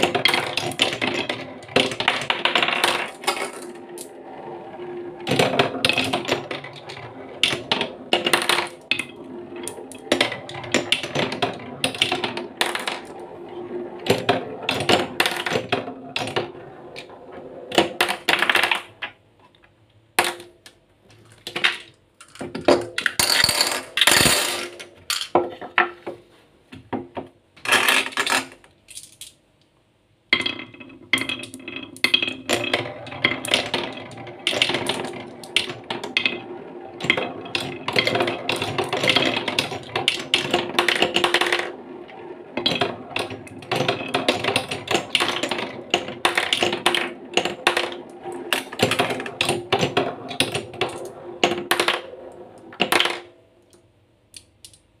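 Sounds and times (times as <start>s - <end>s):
marble rattling in wooden bowl: 21.3s - 25.4s, 30.4s - 53.3s.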